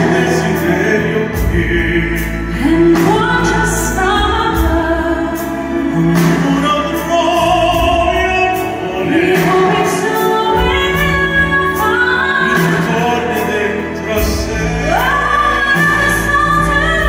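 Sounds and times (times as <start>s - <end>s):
grand piano: 0.0s - 17.0s
man singing: 0.0s - 17.0s
steady drum beat: 0.0s - 17.0s
woman singing: 2.3s - 7.0s, 9.0s - 17.0s.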